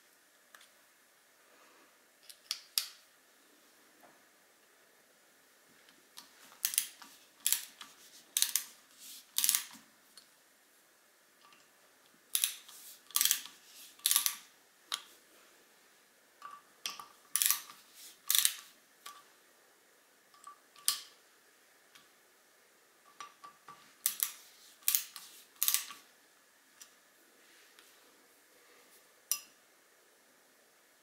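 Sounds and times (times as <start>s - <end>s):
screwdriver clicking and scraping: 6.2s - 9.8s, 12.3s - 15.1s, 16.4s - 19.2s, 24.0s - 26.0s.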